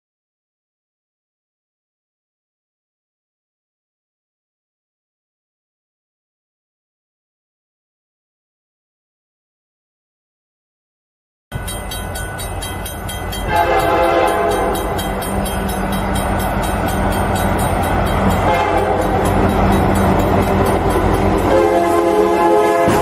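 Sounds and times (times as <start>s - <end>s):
train engine rumble: 11.5s - 23.0s
locomotive horn blasts: 13.5s - 15.2s, 18.4s - 20.2s, 21.3s - 23.0s.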